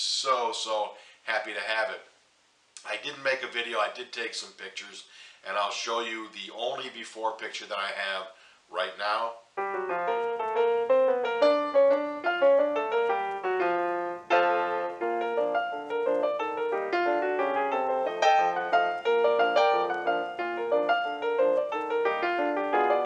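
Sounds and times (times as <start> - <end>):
piano music: 9.6 - 23.0.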